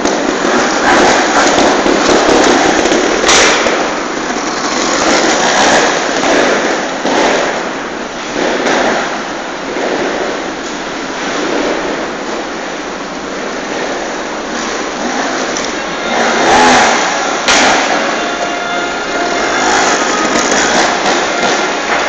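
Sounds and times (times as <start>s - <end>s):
sharp crack: 0.0s - 10.4s, 16.6s - 18.4s
motorcycle engines crackling: 0.0s - 22.0s.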